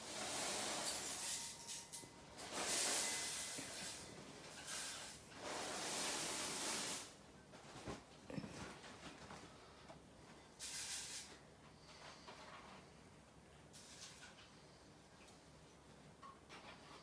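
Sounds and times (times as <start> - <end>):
fabric rustling: 7.5 - 9.8.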